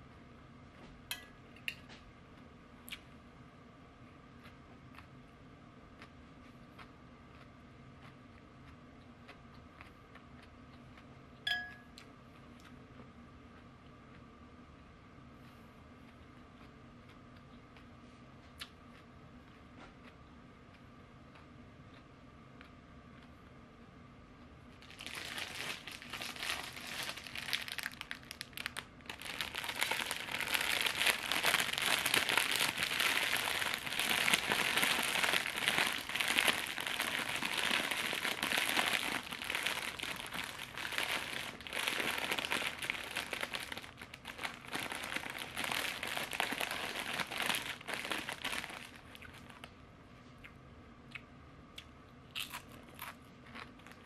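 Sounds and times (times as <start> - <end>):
snack bag crinkling: 24.8 - 49.7, 52.4 - 54.0.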